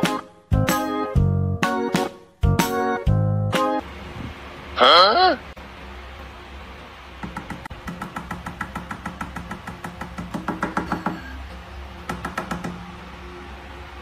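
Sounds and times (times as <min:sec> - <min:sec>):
fingers tapping on glass: 0:07.2 - 0:11.4, 0:12.0 - 0:12.8.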